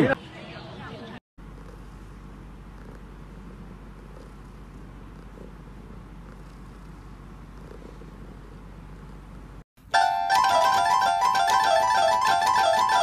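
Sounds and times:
cat purring: 0:01.4 - 0:09.6
electronic keyboard repeated notes: 0:10.0 - 0:13.0.

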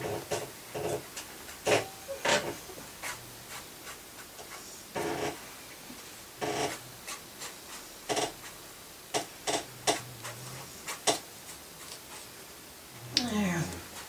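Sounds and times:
brush strokes on paper: 0:02.6 - 0:04.9, 0:13.7 - 0:14.0.

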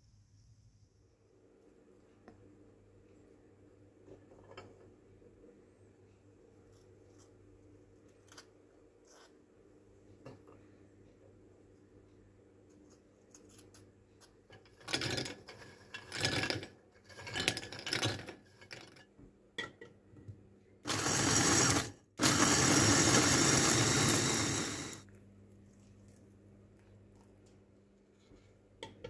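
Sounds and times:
electric food chopper grinding: 0:20.8 - 0:25.0.

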